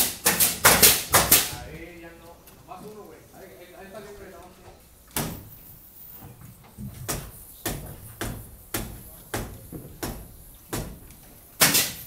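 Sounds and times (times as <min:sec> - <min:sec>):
nail gun shots: 0:00.0 - 0:01.6, 0:05.1 - 0:05.5, 0:07.1 - 0:12.0.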